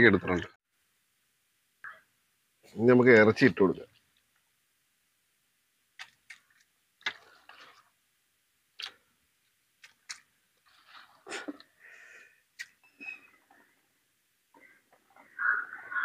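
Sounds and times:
soft rustling: 10.5 - 11.8.

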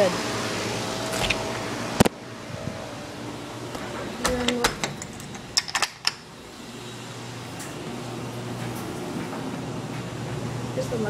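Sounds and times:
air conditioning fan hiss: 0.0 - 11.0
clicks and knocks: 4.2 - 6.3.

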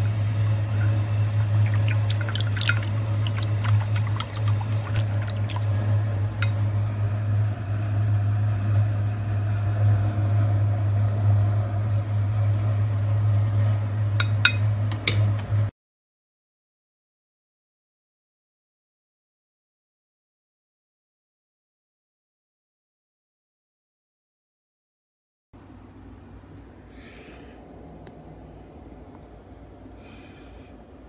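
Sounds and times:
liquid swishing and bubbling: 0.0 - 13.5
steady low hum: 0.0 - 15.7, 25.6 - 31.0.

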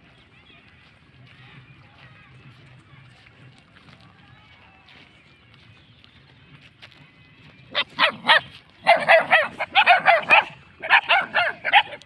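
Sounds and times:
puppies yipping and barking: 7.6 - 12.0.

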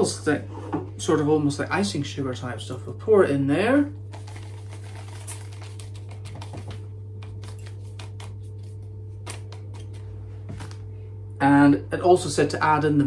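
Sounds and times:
steady low hum: 0.0 - 13.0
plastic sachet crinkling: 4.0 - 10.8
powder pouring into mug: 4.1 - 6.5.

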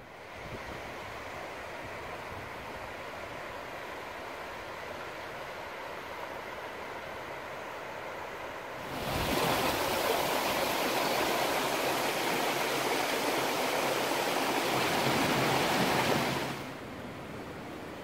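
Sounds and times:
whitewater rapids rushing: 8.8 - 16.8.

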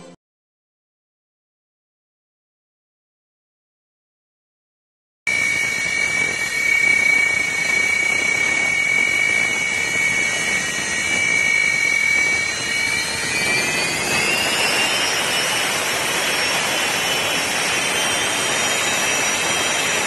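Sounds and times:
jet engine whine: 5.3 - 20.0
jet engine rushing hiss: 5.4 - 20.0.

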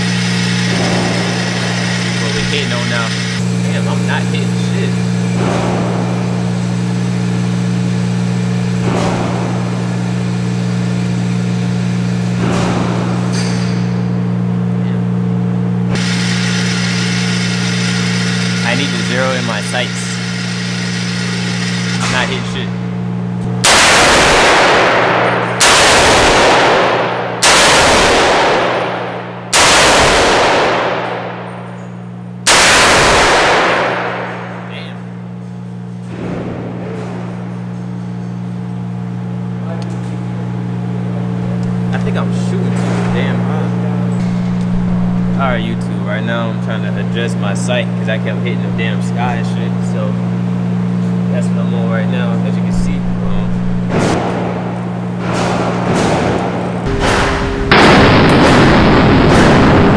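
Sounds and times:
low mechanical hum: 0.0 - 59.9
gunshots: 23.6 - 31.5, 32.5 - 34.7, 53.9 - 59.9.

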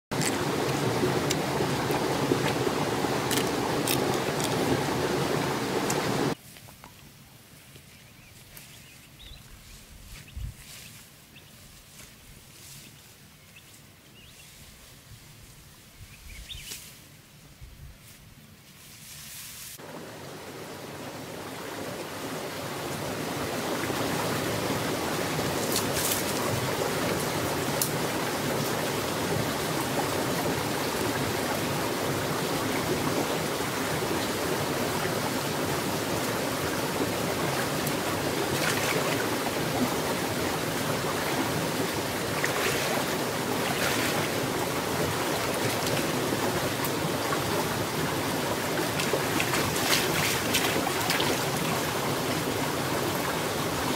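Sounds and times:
creek water rushing over rocks: 0.0 - 6.4, 19.8 - 53.9
wading splashes: 21.6 - 53.9.

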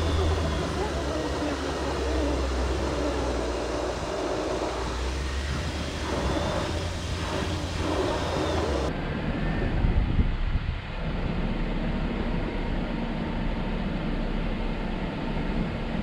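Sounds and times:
car engine drone: 0.0 - 16.0
rough driving noise: 0.0 - 16.0.

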